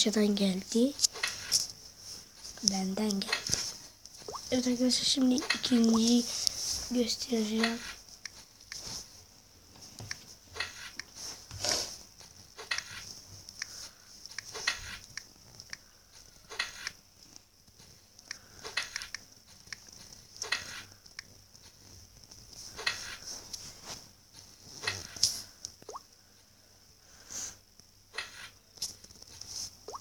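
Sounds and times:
faint hiss: 12.8s - 30.0s
typing on touchscreen: 16.5s - 17.0s.

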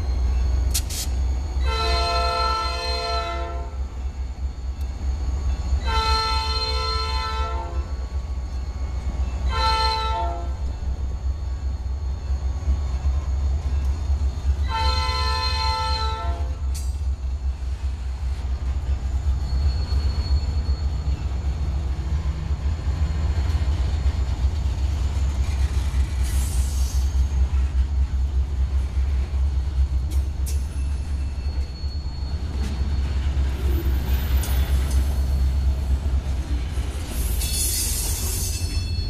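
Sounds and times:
freight train rumbling past: 0.0s - 39.0s
faint high wheel squeal: 18.9s - 21.7s, 30.4s - 35.8s, 37.1s - 39.0s.

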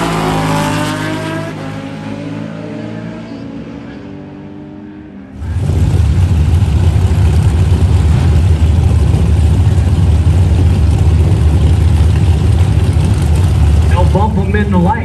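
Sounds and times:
car engines idling loudly: 5.3s - 15.0s.

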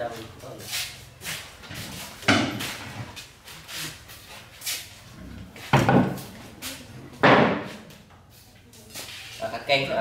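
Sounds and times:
knocks of household things: 2.2s - 2.9s, 5.7s - 6.3s, 7.2s - 7.8s.

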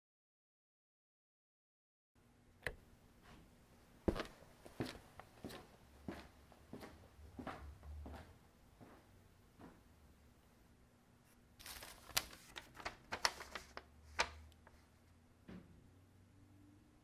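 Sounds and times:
paper rustling and crinkling: 11.6s - 14.9s.

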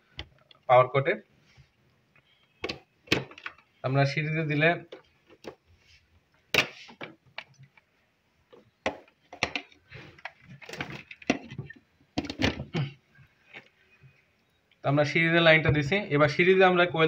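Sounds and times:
electrical wires clicking and rustling: 6.5s - 14.2s.

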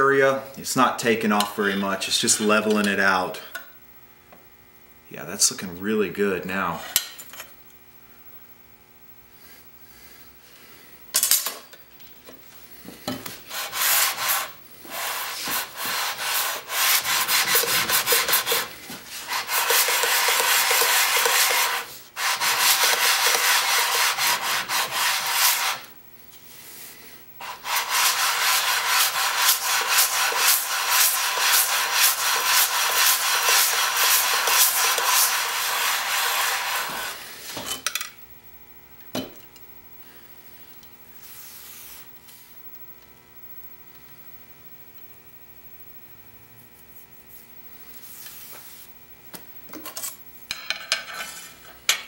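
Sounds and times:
plane sole scraping on abrasive paper: 13.5s - 25.9s, 27.4s - 37.4s.

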